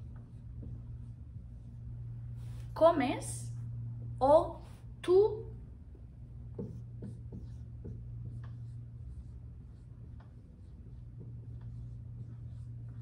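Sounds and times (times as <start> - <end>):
marker writing on whiteboard: 0.0 - 1.8, 6.4 - 13.0.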